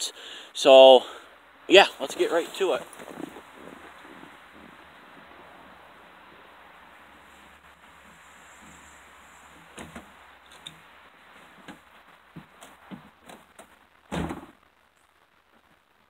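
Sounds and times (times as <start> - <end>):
truck door slamming shut: 14.1 - 14.5.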